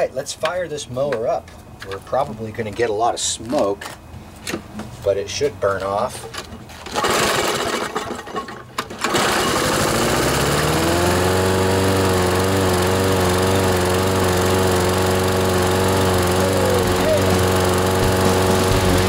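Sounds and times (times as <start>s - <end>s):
lawnmower engine starting and running: 6.7s - 19.0s.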